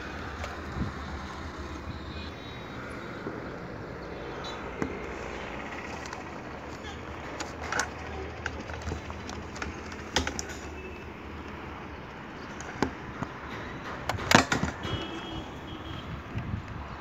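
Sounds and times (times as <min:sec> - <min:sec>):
sharp clicks and knocks: 0:04.7 - 0:11.6, 0:12.4 - 0:15.1.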